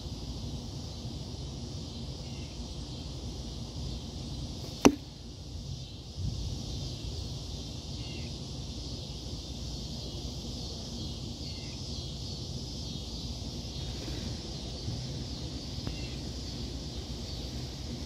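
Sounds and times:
high-pitched hiss: 0.0 - 18.0
wind rumbling on microphone: 5.5 - 7.5
faint chirps: 7.9 - 8.4, 9.9 - 17.7.

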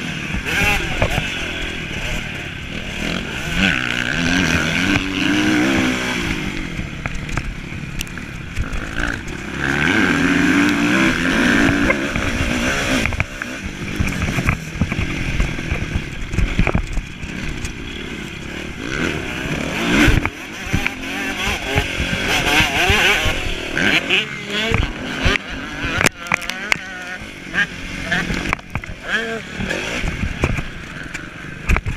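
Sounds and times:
motocross bike engine revving: 0.0 - 31.9
sharp knocks and clicks: 11.6 - 17.8.

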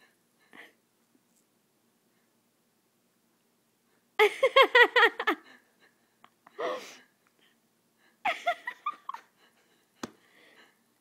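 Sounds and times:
person laughing hard: 4.2 - 6.7, 8.2 - 9.6
wheezing gasp for breath: 6.5 - 7.1.

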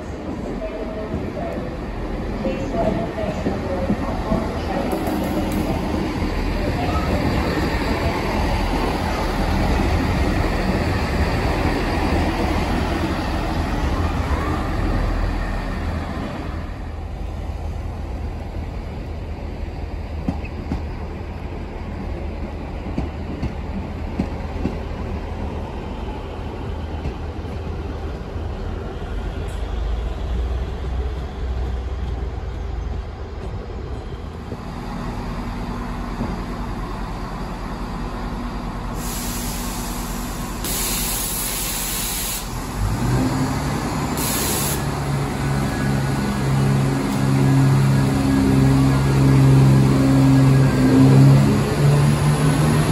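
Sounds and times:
diesel train rumbling: 0.0 - 52.9
air hiss bursts: 39.0 - 42.6, 44.2 - 45.0.

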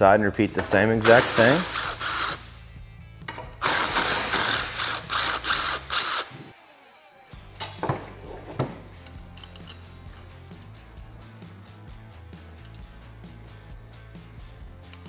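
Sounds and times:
power tool pulsing on bolt: 1.0 - 2.4, 3.6 - 6.4.

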